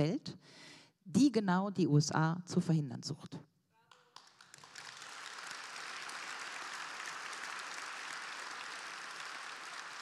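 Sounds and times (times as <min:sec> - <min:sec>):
audience applauding: 0:03.9 - 0:10.0.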